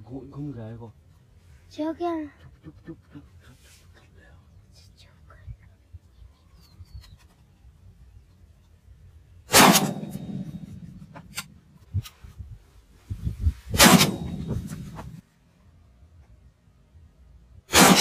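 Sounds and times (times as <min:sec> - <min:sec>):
suppressed air rifle shots: 0:09.5 - 0:11.6, 0:13.7 - 0:15.2, 0:17.7 - 0:18.0.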